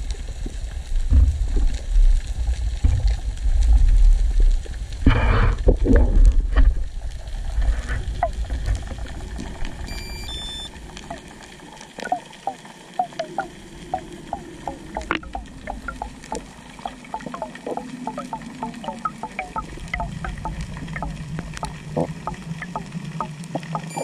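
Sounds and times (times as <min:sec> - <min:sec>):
low underwater rumble: 0:00.0 - 0:24.0
high beeps: 0:09.9 - 0:10.7, 0:23.8 - 0:24.0.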